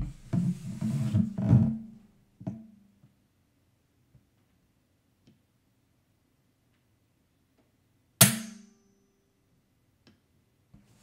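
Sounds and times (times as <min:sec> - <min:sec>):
sharp knock: 0:08.2 - 0:08.8.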